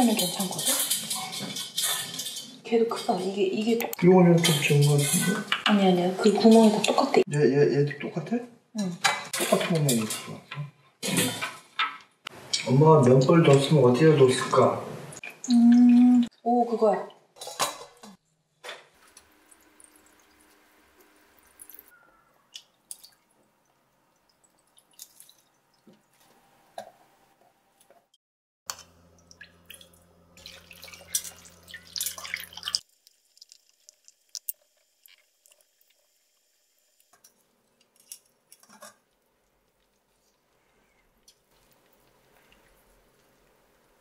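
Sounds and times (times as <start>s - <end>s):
liquid dripping into metal bowl: 28.7s - 34.5s.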